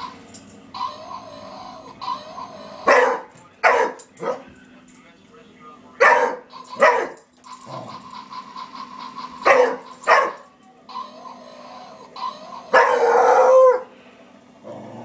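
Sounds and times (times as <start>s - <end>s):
dog baying: 0.8s - 4.5s, 9.4s - 10.4s, 11.2s - 13.9s
dog barking: 2.8s - 4.5s, 6.0s - 7.2s, 9.5s - 10.4s, 12.7s - 13.2s.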